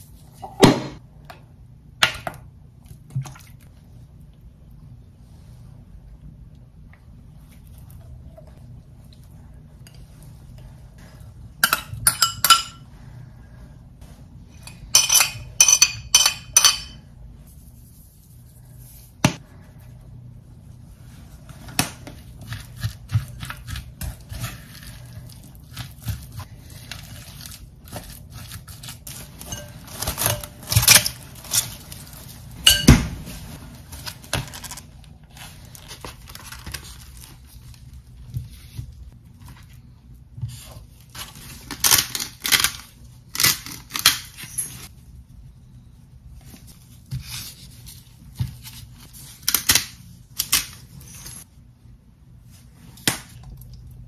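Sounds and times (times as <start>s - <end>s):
metal spoon clinking on glass bowl: 15.0s - 17.0s.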